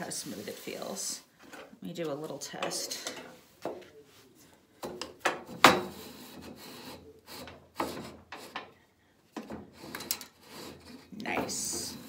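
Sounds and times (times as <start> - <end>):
saw fence scraping and knocking: 5.4 - 8.7, 9.4 - 12.0.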